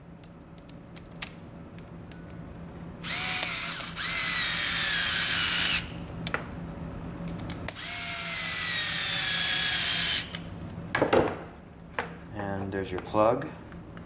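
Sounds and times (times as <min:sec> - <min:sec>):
electric screwdriver whining: 0:03.0 - 0:05.9, 0:07.7 - 0:10.4.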